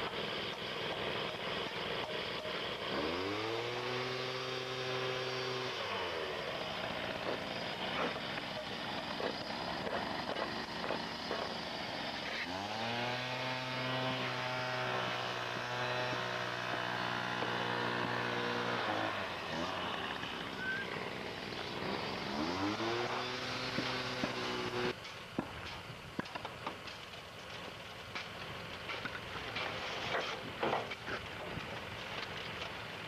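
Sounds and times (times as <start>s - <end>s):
steady mechanical noise: 0.0s - 33.0s
engine revving: 0.8s - 25.0s.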